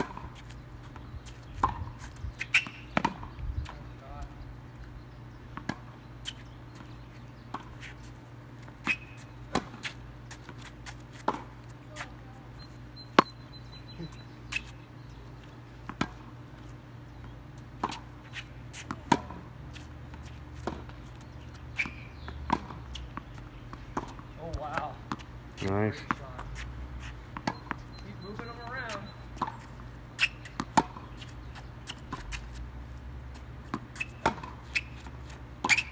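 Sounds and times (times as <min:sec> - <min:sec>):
racket striking tennis ball: 0:08.8 - 0:10.6, 0:18.8 - 0:19.4, 0:33.6 - 0:35.9
ball bouncing on court: 0:21.8 - 0:23.3, 0:33.7 - 0:35.0.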